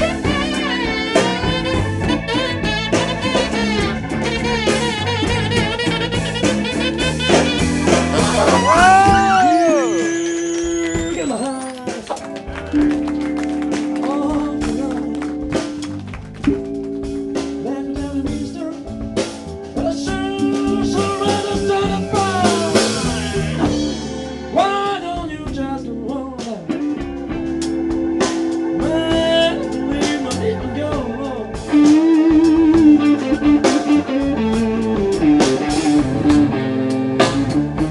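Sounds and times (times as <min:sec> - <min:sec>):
saxophone: 0:00.0 - 0:25.5
drum kit beat: 0:00.0 - 0:37.9
electric bass: 0:00.0 - 0:37.9.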